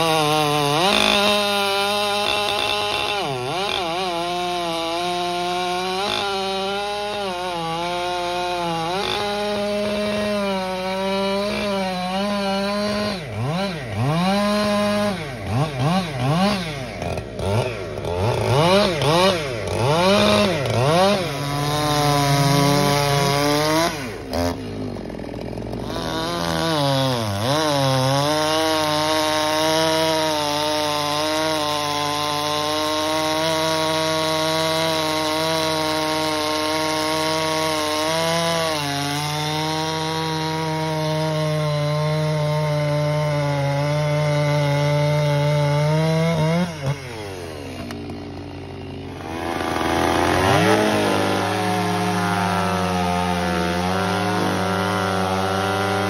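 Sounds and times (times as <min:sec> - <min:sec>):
chainsaw cutting through log: 0:00.0 - 0:56.0
second chainsaw revving and cutting: 0:00.0 - 0:56.0.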